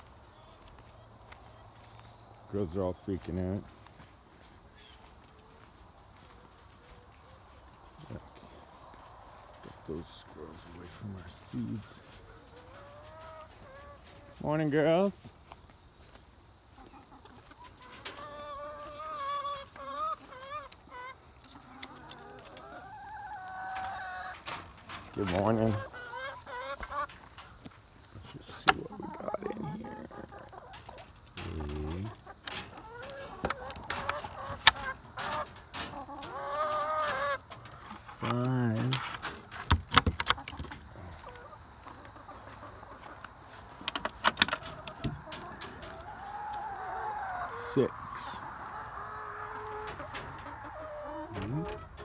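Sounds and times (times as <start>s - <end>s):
hens calling: 0.6s - 52.0s
wooden coop clicks and knocks: 32.4s - 40.9s, 43.8s - 46.0s, 51.2s - 52.0s.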